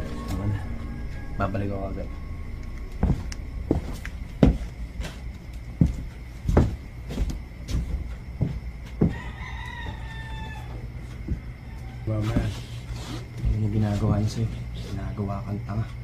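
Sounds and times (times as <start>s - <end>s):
rooster crowing: 0.0s - 6.0s, 8.3s - 13.2s.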